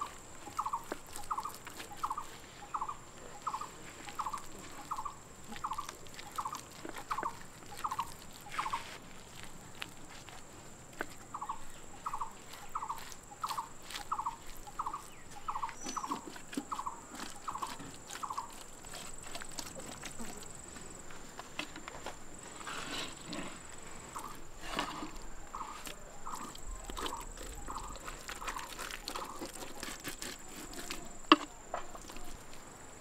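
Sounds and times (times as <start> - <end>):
chirping calls: 0.4 - 8.8, 11.3 - 18.6, 25.5 - 29.4
hands squelching marinade into meat: 25.6 - 31.1.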